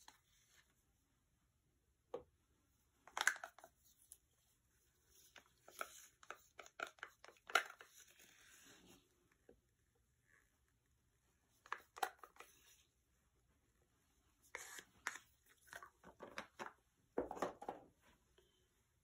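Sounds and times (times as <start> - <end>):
plastic cup knocks and clicks: 16.0 - 17.9.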